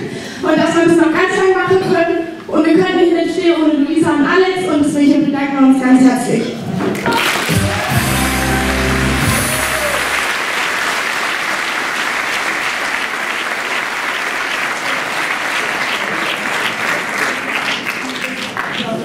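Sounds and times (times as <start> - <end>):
audience applauding: 6.9 - 19.0.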